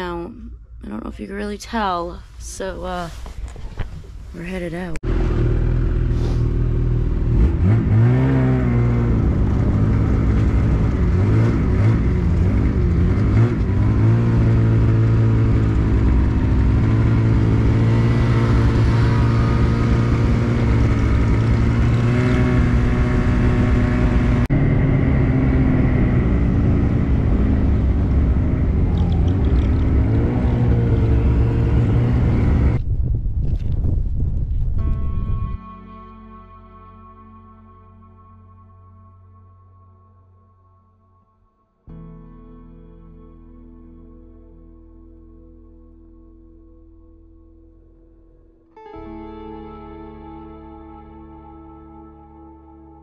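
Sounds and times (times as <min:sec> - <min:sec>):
snowmobile engine droning: 0:05.0 - 0:32.8.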